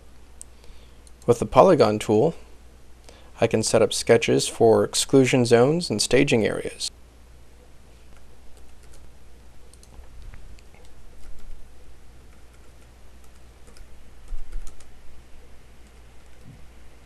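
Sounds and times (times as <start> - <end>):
steady low hum: 0.0 - 17.0
keyboard typing: 8.2 - 11.6, 12.2 - 14.9.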